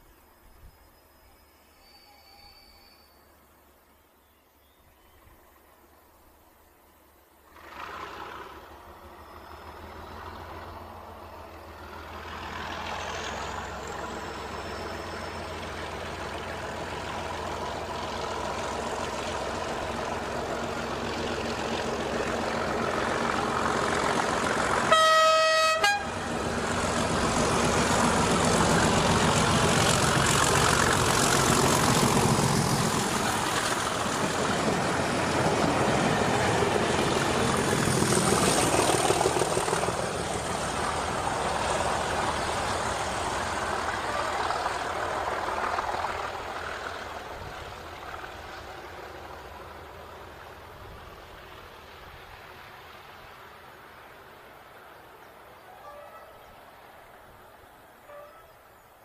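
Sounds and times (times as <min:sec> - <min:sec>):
diesel locomotive engine passing: 0:04.8 - 0:59.0
wheels and coaches rumbling: 0:05.1 - 0:59.0
train horn blast: 0:24.8 - 0:26.4, 0:55.7 - 0:56.4, 0:58.0 - 0:58.6.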